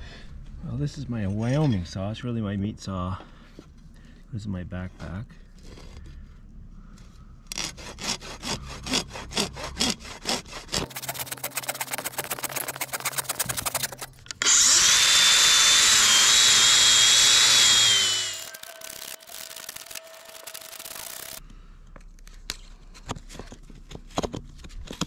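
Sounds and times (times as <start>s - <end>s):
saw cutting rubber: 7.5s - 21.4s
power tool whining: 10.8s - 21.4s.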